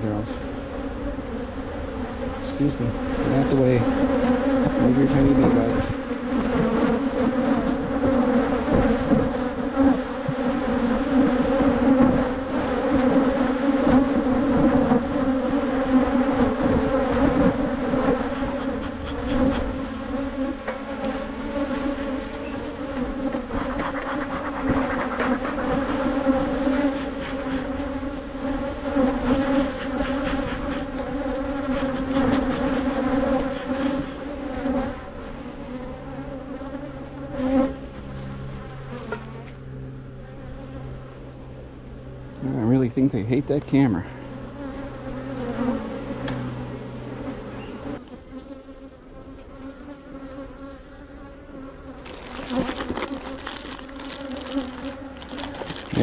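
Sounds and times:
bees buzzing: 0.0 - 56.0.

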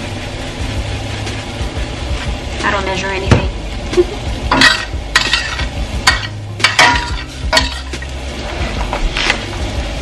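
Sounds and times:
onions and peppers sizzling in butter: 0.0 - 10.0
clinks and knocks against pan: 4.5 - 8.1.

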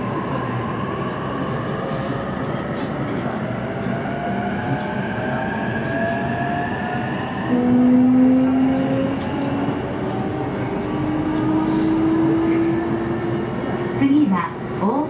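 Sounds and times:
wheels rumbling on rails: 5.7 - 15.0.

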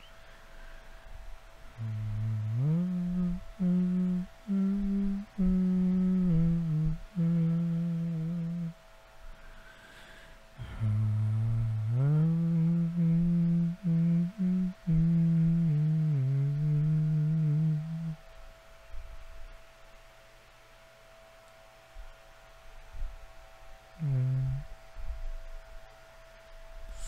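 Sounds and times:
man humming a slow melody: 0.0 - 19.6, 22.9 - 27.0.

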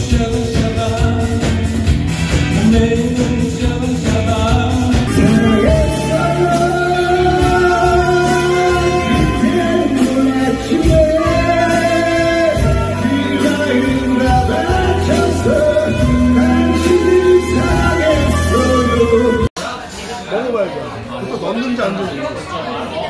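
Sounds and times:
live band playing: 0.0 - 19.5
man singing: 0.0 - 19.5
trumpet long held notes: 5.1 - 19.5.

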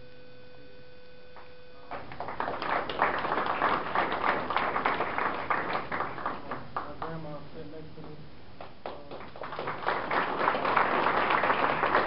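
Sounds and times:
electrical hum: 0.0 - 12.0
audience applauding: 1.8 - 7.3, 8.6 - 12.0.

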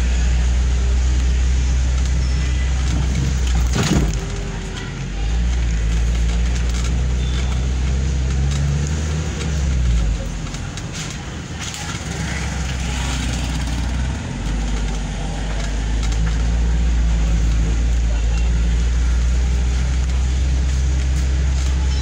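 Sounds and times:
vehicle engine and road noise: 0.0 - 22.0.

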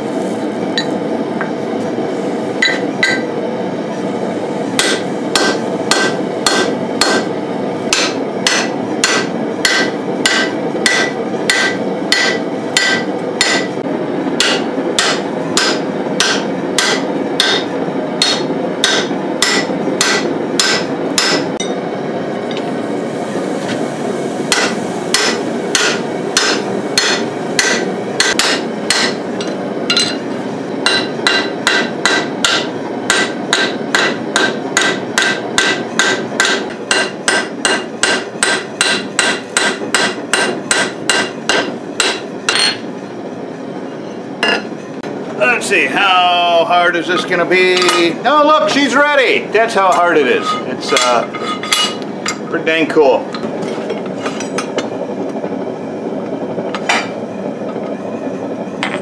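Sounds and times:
hammer striking hot steel on anvil: 2.6 - 3.4, 4.8 - 13.8, 14.4 - 21.8, 24.5 - 42.9, 44.4 - 44.8, 47.1 - 48.2, 49.8 - 52.4, 53.3 - 54.9, 56.7 - 57.2.

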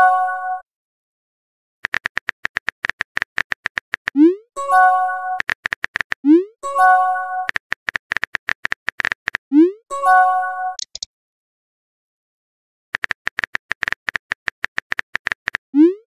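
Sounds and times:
keyboard typing clicks: 1.8 - 4.2, 5.4 - 6.3, 7.4 - 9.4, 10.8 - 11.1, 13.0 - 15.6.

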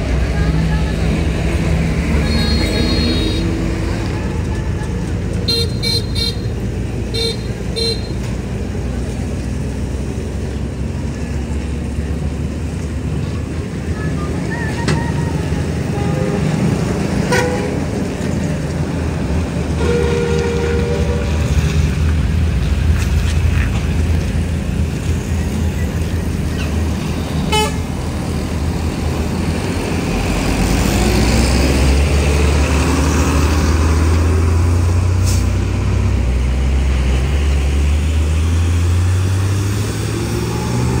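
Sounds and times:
diesel truck engines: 0.0 - 41.0
truck horn toot: 2.1 - 3.6, 5.4 - 8.3, 15.8 - 17.8, 19.8 - 21.4, 27.5 - 27.9.

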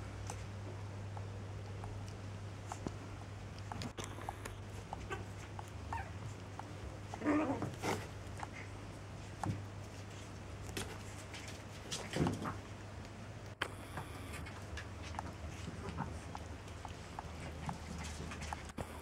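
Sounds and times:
puppies' claws clicking and scuffling: 0.1 - 13.2, 14.3 - 19.0
puppy vocal sound: 2.6 - 8.8.

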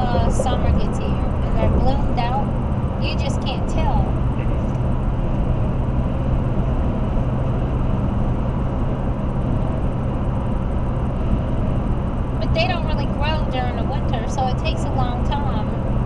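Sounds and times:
car engine hum: 0.0 - 16.0.

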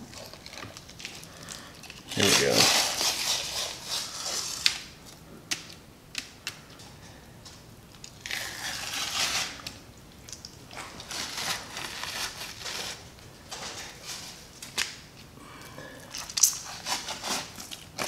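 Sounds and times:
membrane tearing and rustling: 0.0 - 5.0, 8.0 - 15.2, 16.2 - 18.0.

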